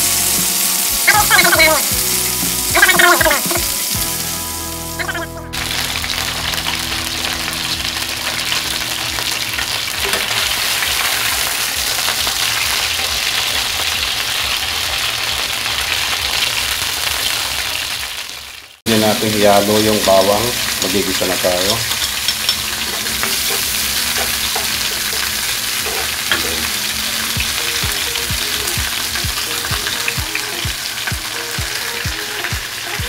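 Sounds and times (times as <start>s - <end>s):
meat sizzling in a pan: 0.0s - 33.0s
short musical phrases: 0.9s - 5.6s.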